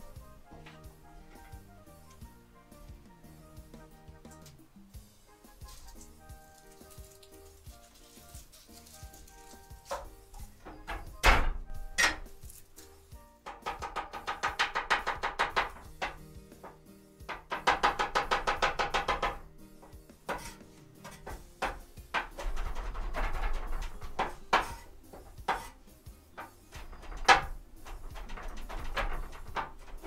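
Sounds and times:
background cumbia music: 0:00.0 - 0:30.0
cleaver chopping on wooden board: 0:25.4 - 0:25.8.

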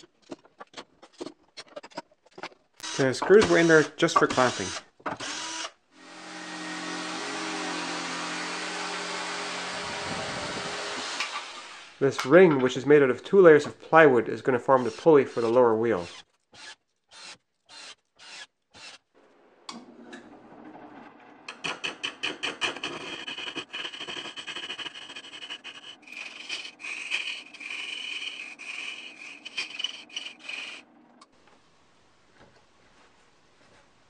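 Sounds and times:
chisel scraping spinning wood: 0:21.5 - 0:30.9.

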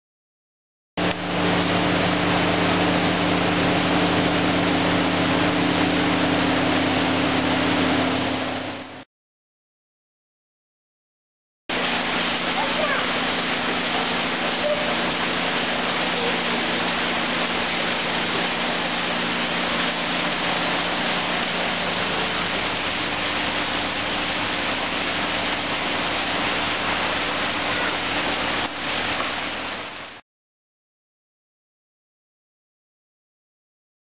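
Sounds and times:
water rushing from small waterfall: 0:01.0 - 0:09.0, 0:11.7 - 0:30.2.

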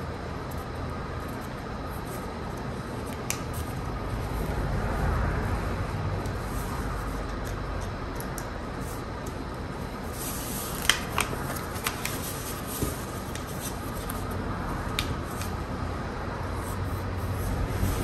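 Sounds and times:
low background rumble: 0:00.8 - 0:10.2
paper crinkling and snapping: 0:10.1 - 0:15.6.

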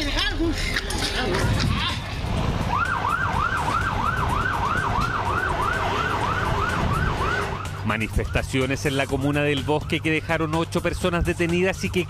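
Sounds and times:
low street noise: 0:00.0 - 0:12.0
police siren yelping: 0:02.5 - 0:10.6.

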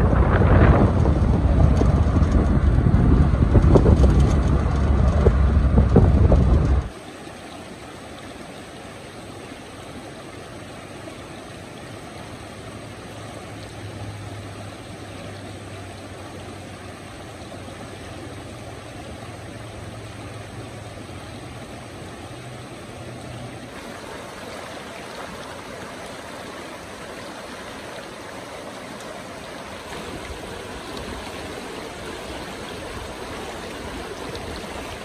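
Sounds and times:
car road and wind noise: 0:00.0 - 0:07.0, 0:12.4 - 0:28.6
stream running over stones: 0:00.0 - 0:35.0.

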